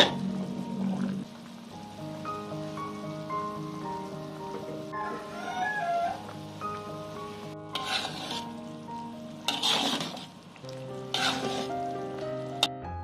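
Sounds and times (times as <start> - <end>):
stew boiling: 0.0 - 12.8
soft background music: 0.0 - 13.0
utensil scraping metal wok: 7.1 - 12.0.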